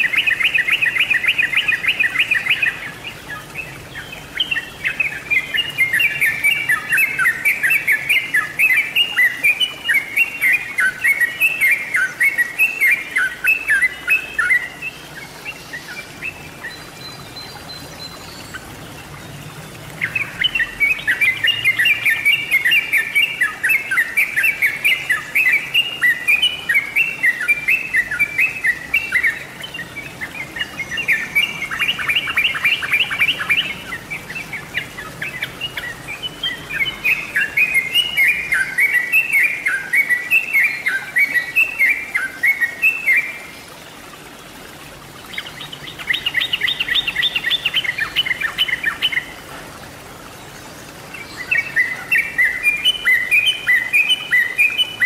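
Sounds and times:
bird chattering song: 0:00.0 - 0:18.6, 0:20.0 - 0:43.3.

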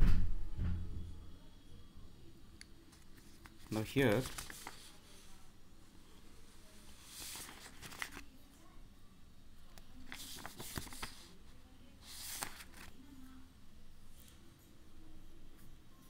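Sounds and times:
paper rustling: 0:02.9 - 0:05.0, 0:07.0 - 0:08.3, 0:10.0 - 0:11.4, 0:12.0 - 0:13.0.

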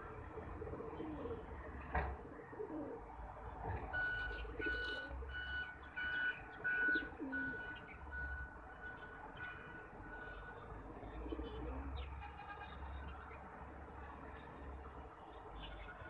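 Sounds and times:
pigeons cooing: 0:00.3 - 0:03.1, 0:04.3 - 0:05.4, 0:06.7 - 0:07.8, 0:10.3 - 0:12.0.

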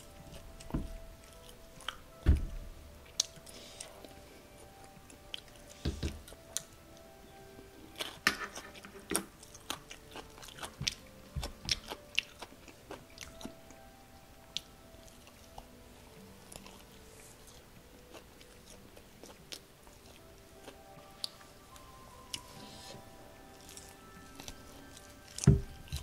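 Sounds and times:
person chewing crispy food: 0:07.9 - 0:13.8, 0:14.5 - 0:26.0.

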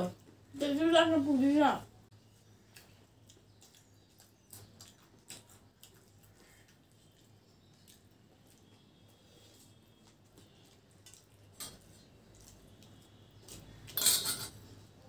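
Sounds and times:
crunchy chewing: 0:02.3 - 0:14.0
spoons clicking on steel plates: 0:13.9 - 0:14.6.

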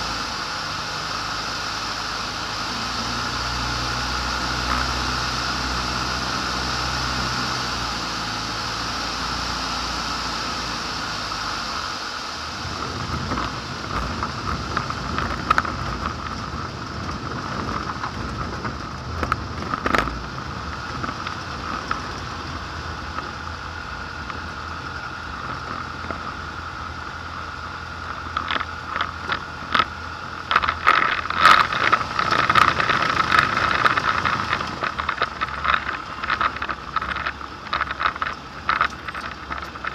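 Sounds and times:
propeller engine running: 0:00.0 - 0:39.9
airframe clicks and rattles: 0:28.0 - 0:39.9.

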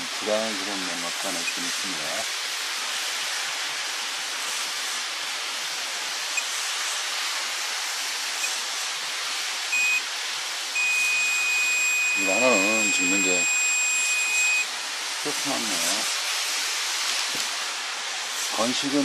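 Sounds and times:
steady background hiss: 0:00.0 - 0:19.0
multimeter beeping: 0:09.7 - 0:10.0, 0:10.8 - 0:14.7.

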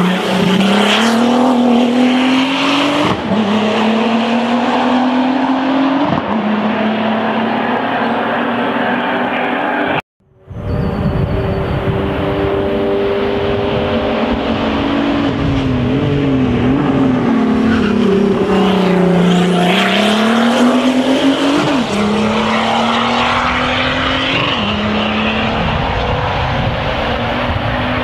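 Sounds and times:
race car engine accelerating: 0:00.0 - 0:10.0, 0:11.0 - 0:28.0.

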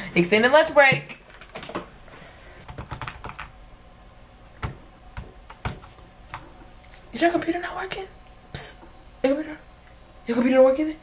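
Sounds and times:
typing on a computer keyboard: 0:02.6 - 0:03.5.

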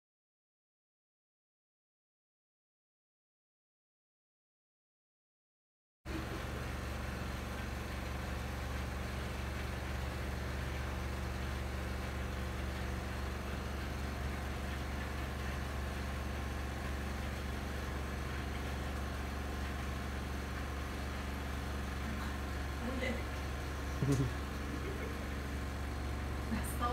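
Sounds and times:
washing machine motor humming: 0:06.1 - 0:26.9.

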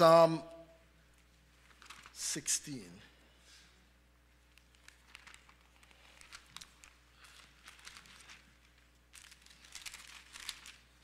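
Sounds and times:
low steady hum: 0:00.0 - 0:11.0
thin pages turning: 0:01.6 - 0:02.2, 0:04.6 - 0:11.0.

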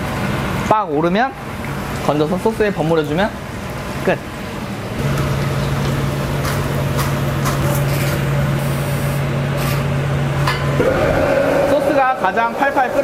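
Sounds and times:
chicken deep-frying in oil: 0:00.0 - 0:09.1
steady low hum: 0:03.2 - 0:13.0.

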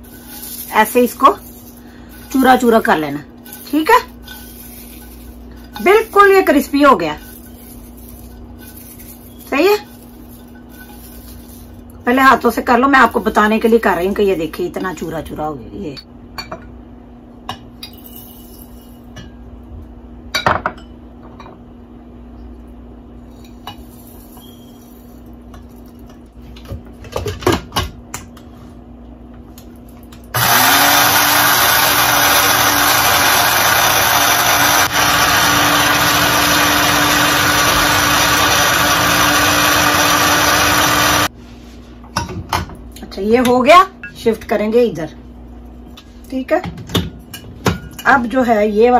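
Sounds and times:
electric spice grinder motor: 0:30.4 - 0:41.3.

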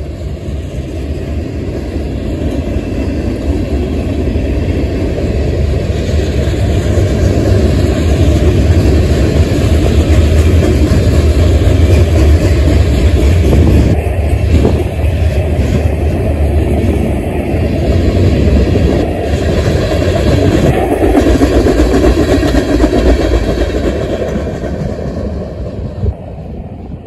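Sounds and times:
train wheels rolling on rails: 0:00.0 - 0:27.0.

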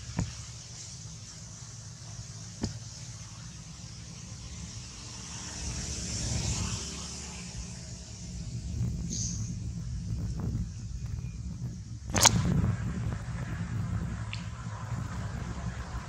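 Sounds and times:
high hiss: 0:00.0 - 0:11.0
low rumble: 0:08.2 - 0:16.0
sharp click: 0:12.1 - 0:12.4.

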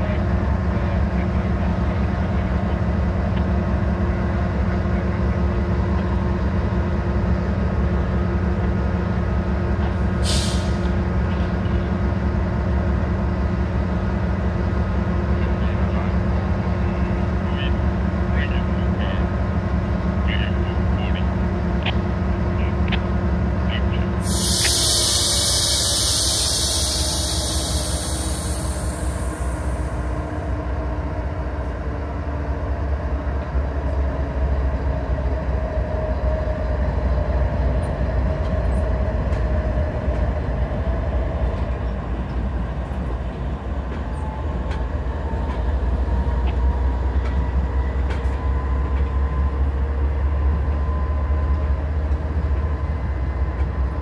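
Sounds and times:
freight train rumbling past: 0:00.0 - 0:54.0
air hiss: 0:10.2 - 0:10.9, 0:24.2 - 0:30.0.

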